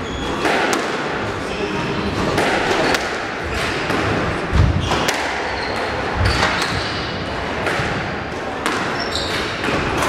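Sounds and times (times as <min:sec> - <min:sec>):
squash ball cracking off rackets: 0:00.4 - 0:01.2, 0:02.2 - 0:07.0.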